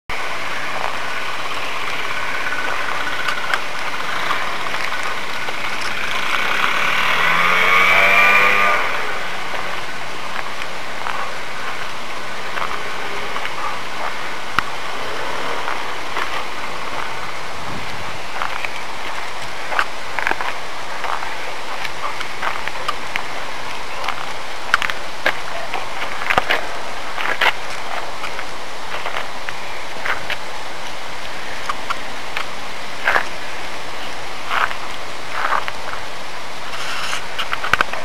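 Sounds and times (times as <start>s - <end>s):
louder engine gliding in pitch: 0.1s - 18.4s
vehicle engine running: 0.1s - 38.0s.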